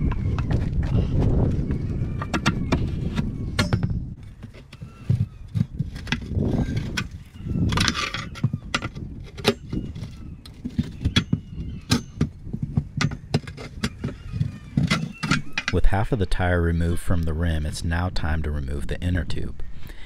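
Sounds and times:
tire irons clanking on wheel rim: 2.2 - 15.9.

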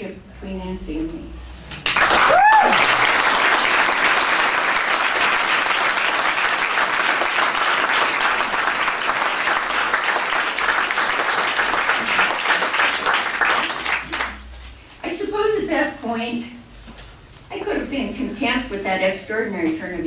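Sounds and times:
audience applauding: 1.8 - 14.4.

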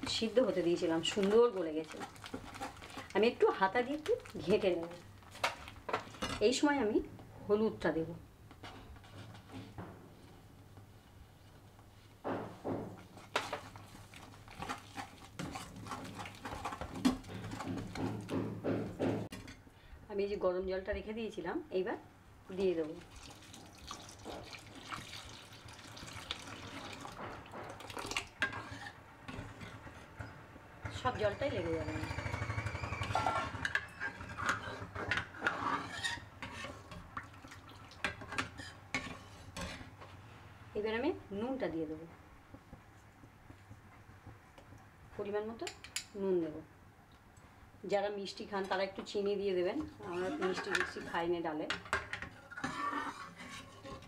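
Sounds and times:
ladle scraping and knocking pan: 12.6 - 19.6, 26.6 - 31.2, 33.0 - 40.0, 49.8 - 54.0.

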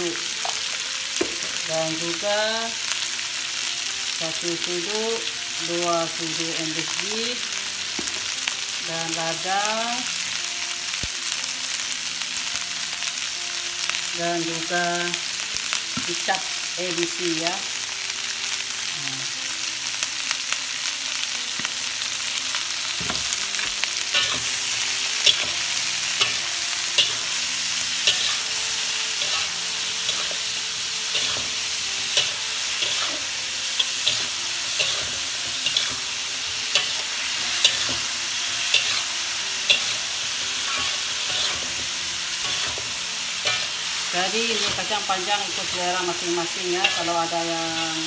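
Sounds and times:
beans sizzling in a wok: 0.0 - 48.0
metal spatula scraping a wok: 23.2 - 46.2, 46.8 - 48.0.

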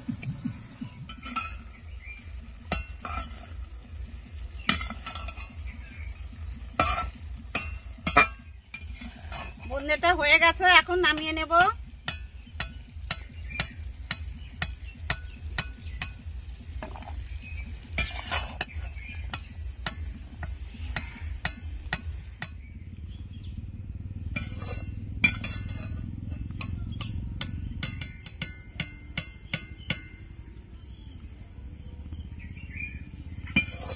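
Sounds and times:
faint sizzle: 0.0 - 27.5
spoon clinking and scraping pan: 1.0 - 10.0, 11.1 - 22.7, 24.3 - 30.2, 33.5 - 33.9.

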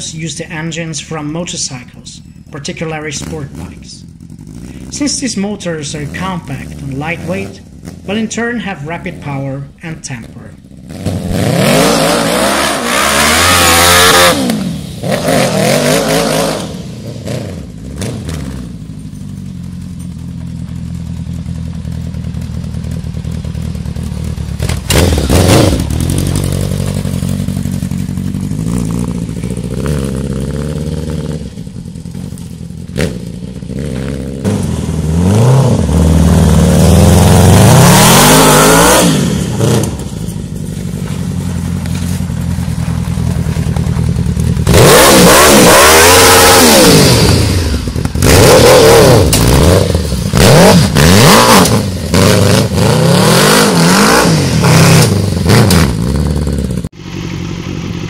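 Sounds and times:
motorcycle engine revving: 0.0 - 58.0
tyres scrabbling on gravel: 40.4 - 44.7.

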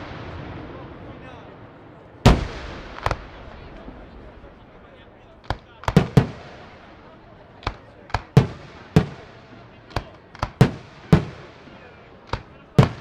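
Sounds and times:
firework shells bursting: 5.4 - 6.9, 7.6 - 11.5, 12.2 - 13.0.

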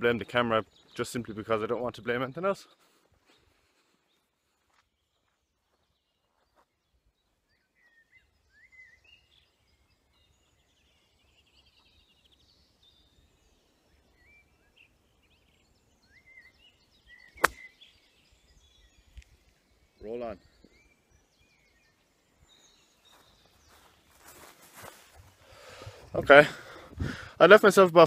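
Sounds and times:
birds chirping: 0.0 - 28.0
golf club striking ball: 17.4 - 17.7.

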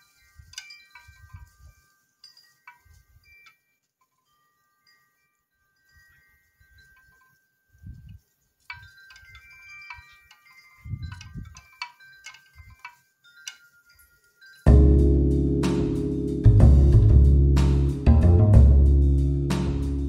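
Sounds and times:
wind chimes ringing: 0.0 - 16.5
wind buffeting microphone: 7.8 - 8.2, 10.7 - 11.7.

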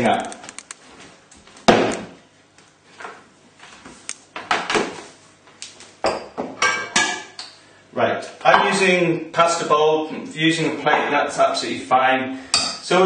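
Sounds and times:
pans and crockery clattering: 6.1 - 7.4.

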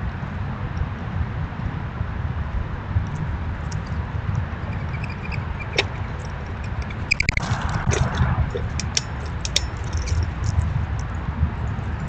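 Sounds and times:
low rumble: 2.1 - 12.0
claws scraping and clicking on feeder: 3.1 - 11.2.

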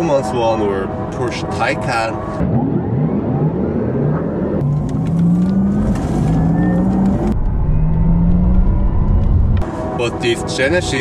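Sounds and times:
synthesized electric car hum: 0.0 - 11.0
tyre and road noise: 2.3 - 11.0.

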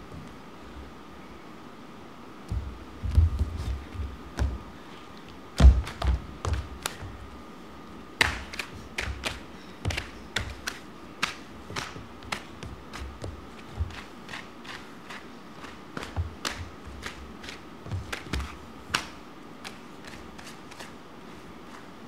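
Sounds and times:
footsteps on wooden stage: 2.5 - 7.4, 8.2 - 10.8, 11.6 - 14.5, 15.7 - 18.6.

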